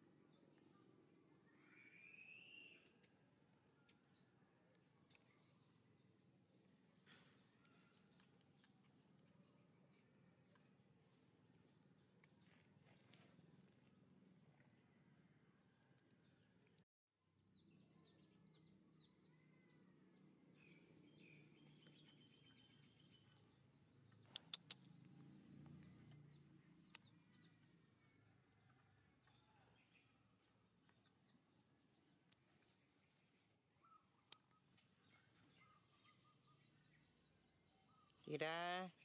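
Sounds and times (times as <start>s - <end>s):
high bird chirps: 1.5s - 2.9s
sharp clicks: 24.2s - 24.9s.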